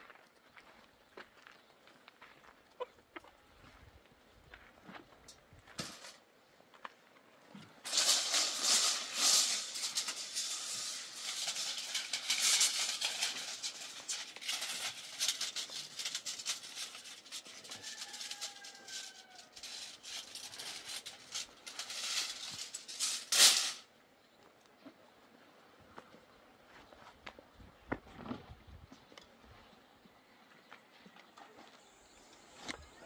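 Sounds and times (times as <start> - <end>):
crinkly rustling material: 7.9 - 23.6.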